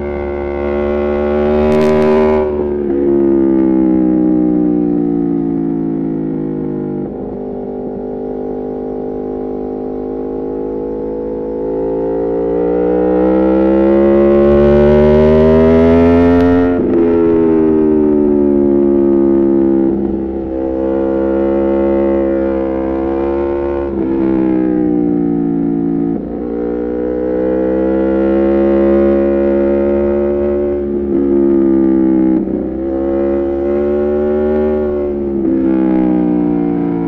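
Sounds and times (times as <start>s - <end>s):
motorcycle engine revving: 0.0s - 37.0s.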